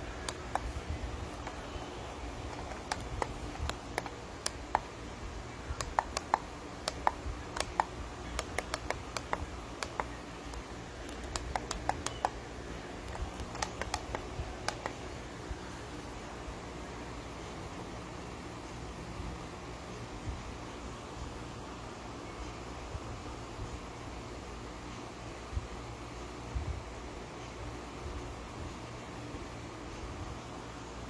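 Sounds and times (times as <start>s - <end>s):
plastic switch clicks: 5.8s - 12.4s, 13.1s - 15.0s.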